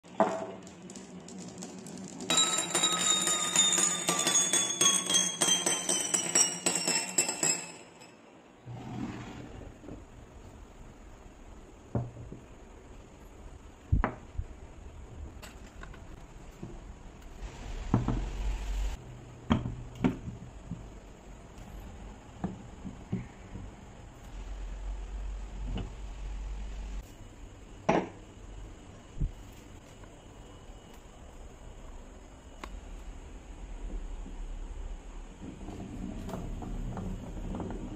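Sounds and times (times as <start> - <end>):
glass marbles clinking: 0.1 - 8.3.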